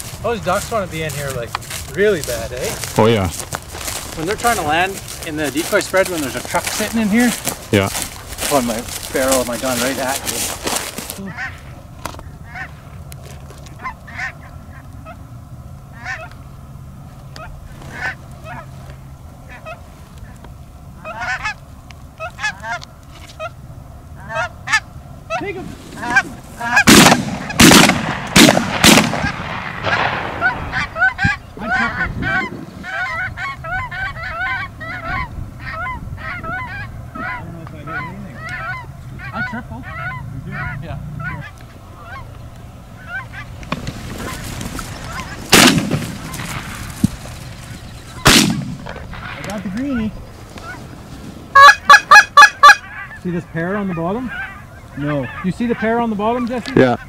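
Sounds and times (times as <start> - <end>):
geese honking: 0.0 - 57.0
loud bangs: 26.0 - 31.3, 43.6 - 50.1.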